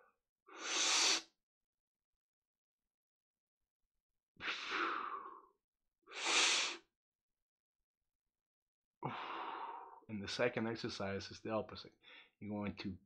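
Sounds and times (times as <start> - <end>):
man breathing deeply: 4.4 - 5.5, 9.0 - 10.0, 12.0 - 12.4
blowing out through mouth: 6.1 - 6.8.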